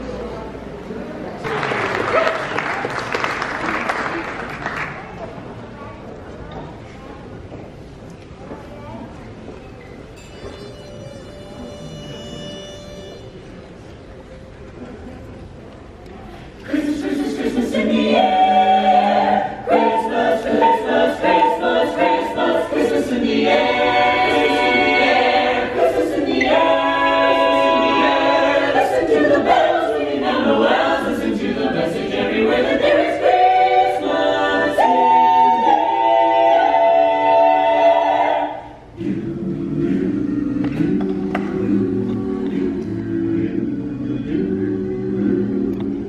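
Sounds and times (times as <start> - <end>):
a cappella choir singing: 16.6 - 46.0.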